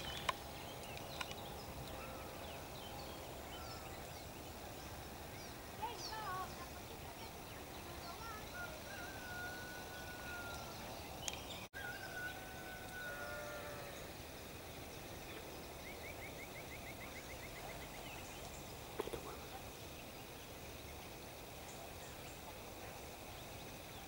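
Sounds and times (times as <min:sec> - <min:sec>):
steady background hiss: 0:00.0 - 0:24.0
long drawn-out animal call: 0:11.8 - 0:14.2.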